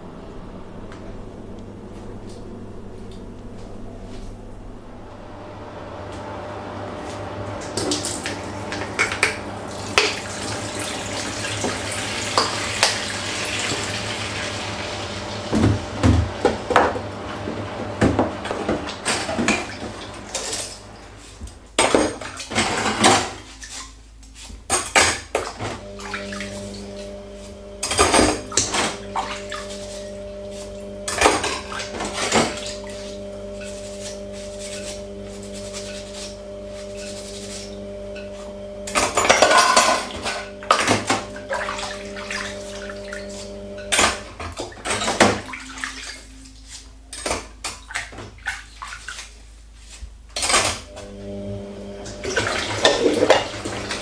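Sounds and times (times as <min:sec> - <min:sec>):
steady hum: 0:00.0 - 0:54.0
tap running into sink: 0:15.5 - 0:17.1
dishes clattering: 0:38.9 - 0:41.3, 0:52.3 - 0:53.6.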